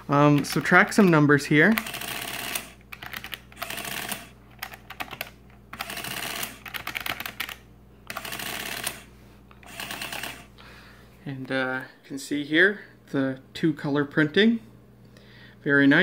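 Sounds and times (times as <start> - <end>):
adding machine printer running: 0.0 - 10.6
adding machine keys clicking: 0.1 - 10.5.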